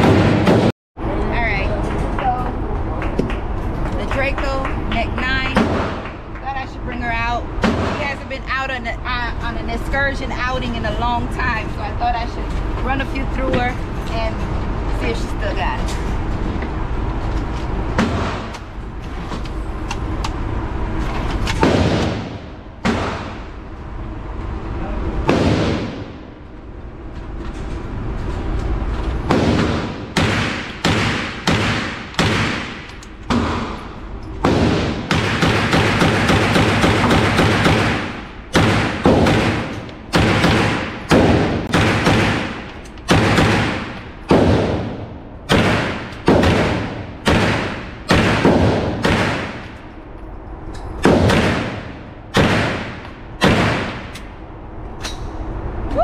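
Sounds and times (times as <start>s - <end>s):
gunshots echoing indoors: 0.0s - 0.7s, 21.5s - 23.7s, 25.2s - 26.3s, 29.3s - 49.9s, 51.0s - 54.4s
continuous loud noise: 0.0s - 56.0s.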